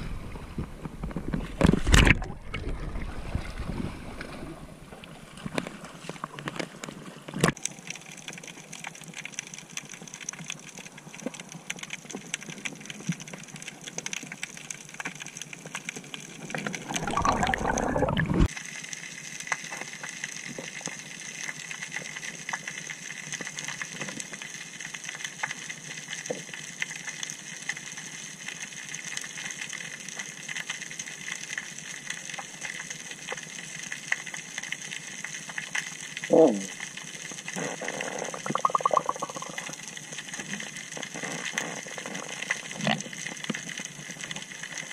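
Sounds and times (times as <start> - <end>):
underwater clicks and hiss: 4.2 - 44.9
rushing gurgling water: 16.4 - 18.5, 37.4 - 44.9.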